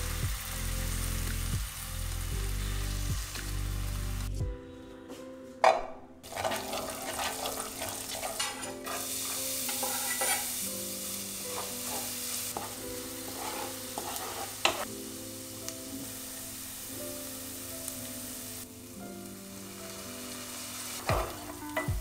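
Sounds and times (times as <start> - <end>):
shallots sizzling in butter: 0.0 - 4.4, 6.2 - 22.0
spatula scraping a pan: 6.2 - 10.8, 11.4 - 14.9.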